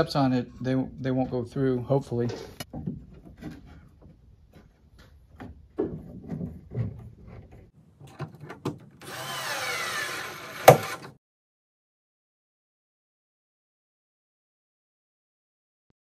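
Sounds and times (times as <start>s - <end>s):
plywood knocks and scrapes: 2.2s - 9.0s, 10.6s - 11.1s
cordless drill into wood: 9.0s - 11.2s.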